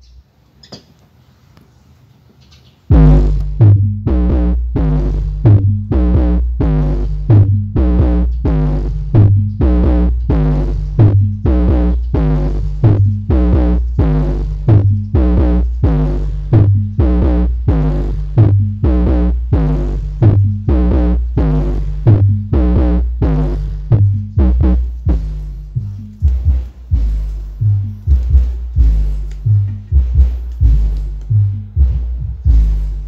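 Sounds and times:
electronic dance music through subwoofer: 0:02.9 - 0:33.0.

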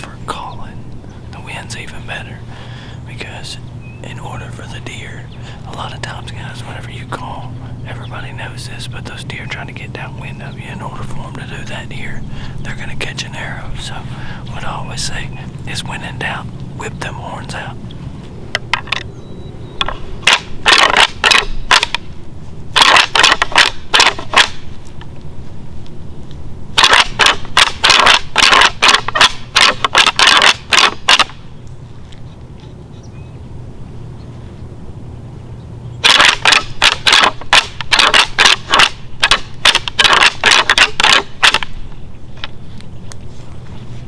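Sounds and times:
antlers clacking together: 0:18.6 - 0:19.1, 0:19.8 - 0:22.1, 0:22.8 - 0:24.6, 0:26.8 - 0:31.4, 0:36.0 - 0:41.8.

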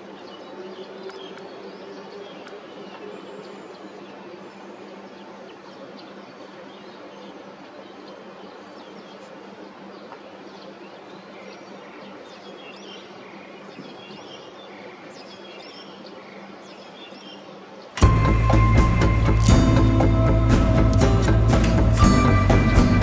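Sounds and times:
steady low hum: 0:00.0 - 0:23.0
loud music: 0:18.0 - 0:23.0.

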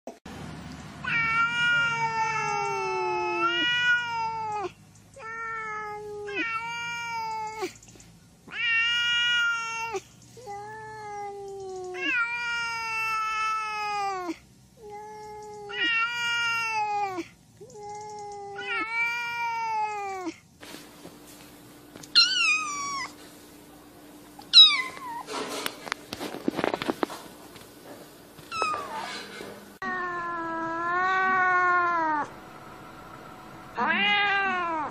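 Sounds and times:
cat meowing: 0:01.0 - 0:07.8, 0:08.5 - 0:20.4, 0:22.2 - 0:23.2, 0:24.5 - 0:25.3, 0:28.5 - 0:29.2, 0:29.8 - 0:32.3, 0:33.8 - 0:34.9.

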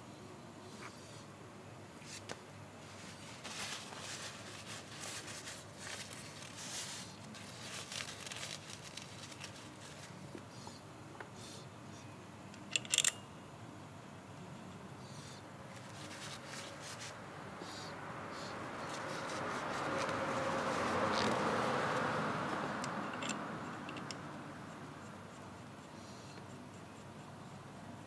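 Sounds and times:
scraping and rustling handling noise: 0:02.0 - 0:10.5, 0:15.7 - 0:17.2, 0:18.8 - 0:21.6.

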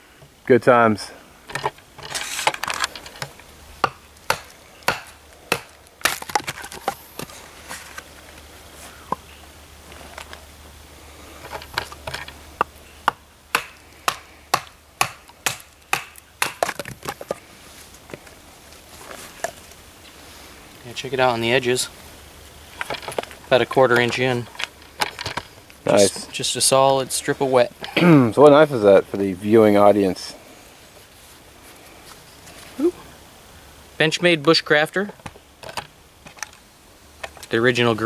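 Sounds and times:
wood cracking: 0:01.5 - 0:08.4, 0:11.4 - 0:17.4.

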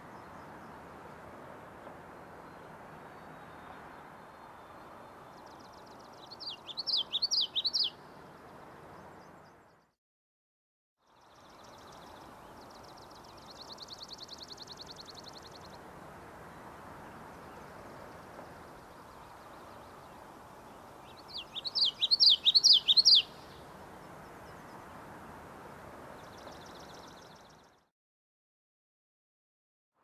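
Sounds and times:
bird chirping: 0:05.4 - 0:08.0, 0:21.0 - 0:23.6
faint background hiss: 0:11.1 - 0:27.8.

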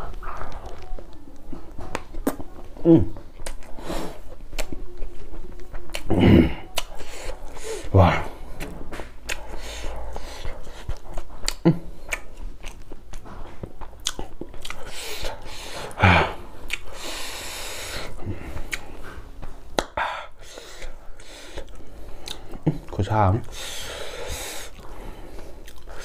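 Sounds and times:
man chewing food: 0:00.0 - 0:26.0
man speaking: 0:22.7 - 0:23.5.

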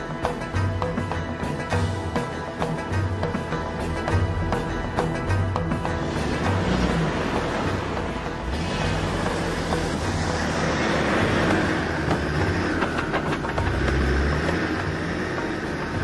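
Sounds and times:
off-road vehicle engine: 0:00.0 - 0:16.0
vehicle body knocks and rattles: 0:11.5 - 0:14.4.

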